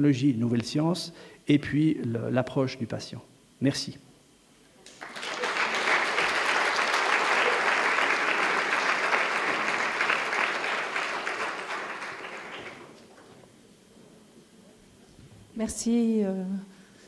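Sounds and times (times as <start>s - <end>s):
audience applauding: 4.9s - 13.4s.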